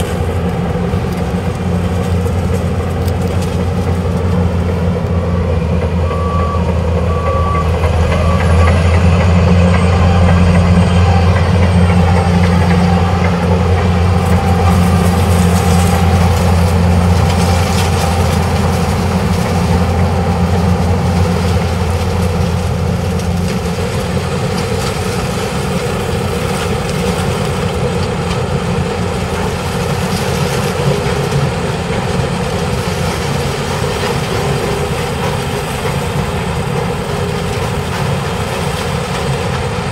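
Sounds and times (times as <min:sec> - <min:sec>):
harvester diesel drone: 0:00.0 - 0:39.9
tractor pulling wagon: 0:00.0 - 0:39.9
short beeps: 0:06.0 - 0:08.9.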